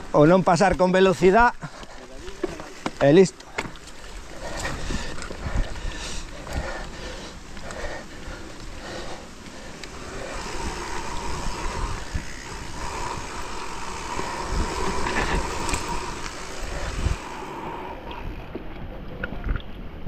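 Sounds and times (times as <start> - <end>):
bike tyres on dirt trail: 0.0 - 20.0
faint steady whine: 6.2 - 19.2.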